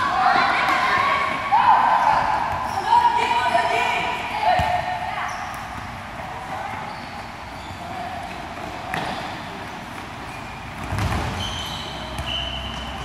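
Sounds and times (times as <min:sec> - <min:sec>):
ball kick thuds echoing: 0:10.8 - 0:11.4.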